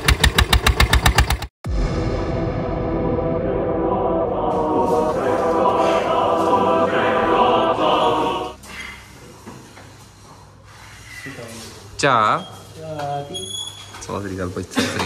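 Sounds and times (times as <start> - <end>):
music with choir-like singing: 1.8 - 8.6.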